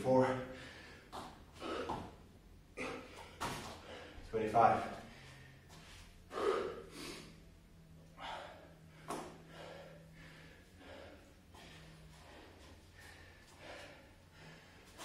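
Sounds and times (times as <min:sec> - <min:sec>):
man breathing hard: 0:00.3 - 0:15.0.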